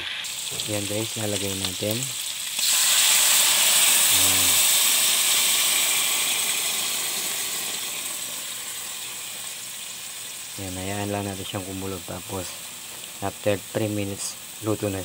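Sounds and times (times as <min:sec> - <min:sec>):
meat sizzling in a hot pan: 0:00.0 - 0:15.0
loud steamy hiss: 0:01.9 - 0:08.8.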